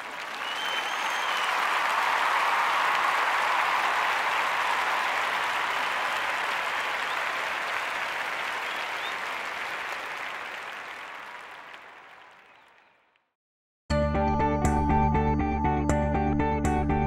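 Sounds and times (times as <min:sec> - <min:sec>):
crowd applause: 0:00.0 - 0:13.1.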